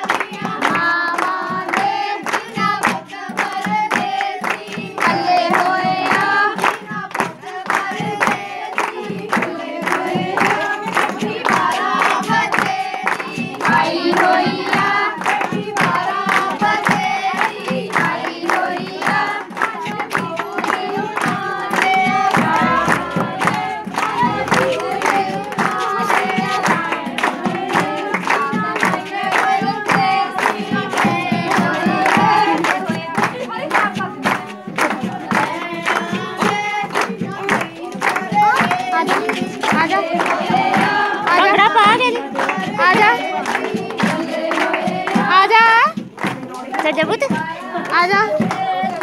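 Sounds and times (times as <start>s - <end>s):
hand-clapping: 0.0s - 49.0s
women singing folk song: 0.0s - 49.0s.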